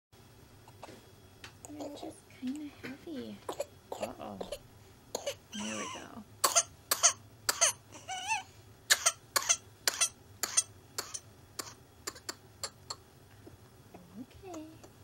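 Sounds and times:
infant coughing: 5.2s - 7.8s, 8.9s - 13.0s.

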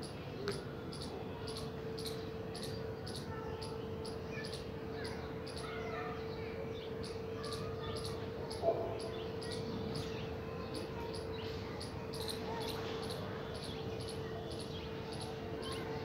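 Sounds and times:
faint bird chirps: 6.8s - 16.0s.

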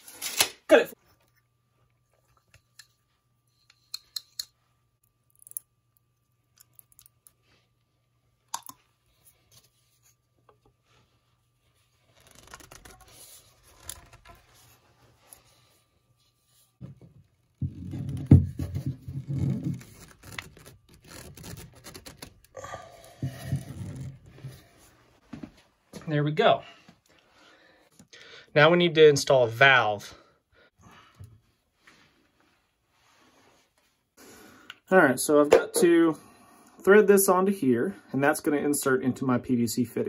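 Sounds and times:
pipe rubbing and scraping: 17.5s - 22.2s, 22.9s - 25.0s
applicator scratching on pipe: 19.2s - 22.4s.

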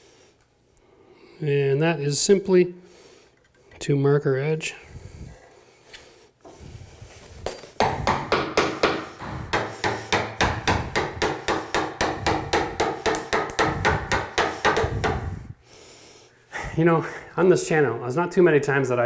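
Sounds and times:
hammer tapping chisel into wood: 7.5s - 15.3s.

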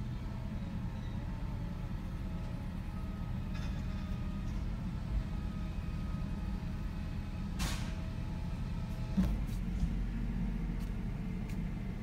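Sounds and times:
air brake hiss: 7.6s - 8.0s.

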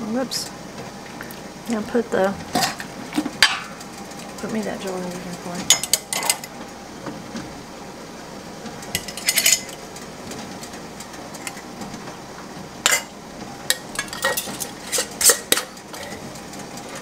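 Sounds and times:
glass jars and utensils clinking: 9.0s - 9.8s.

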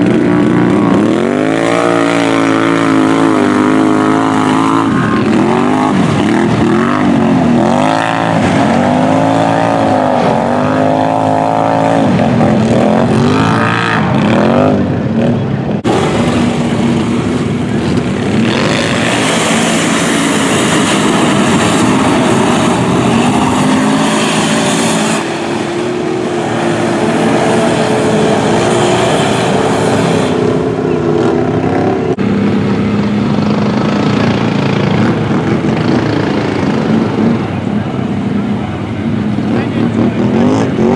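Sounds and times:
wheels spraying mud and water: 0.0s - 14.6s, 15.9s - 31.6s
atv engines revving: 0.0s - 40.9s.

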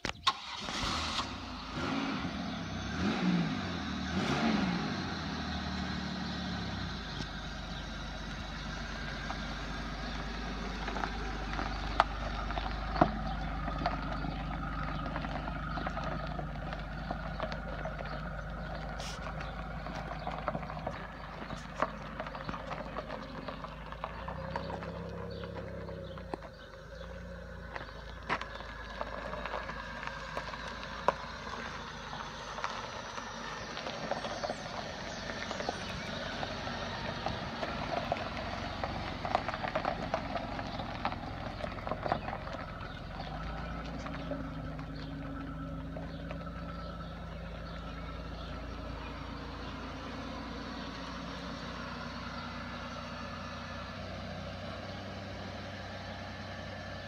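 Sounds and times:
car engine running: 0.1s - 57.0s
engine clicks and knocks: 7.0s - 51.5s.

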